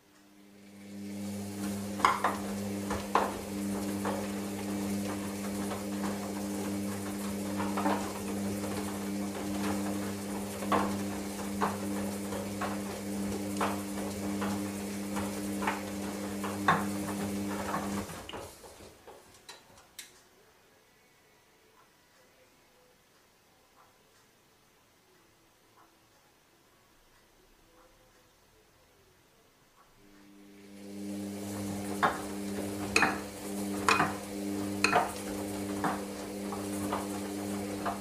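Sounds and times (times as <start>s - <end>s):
washing machine motor hum: 0.0s - 19.8s, 29.9s - 38.0s.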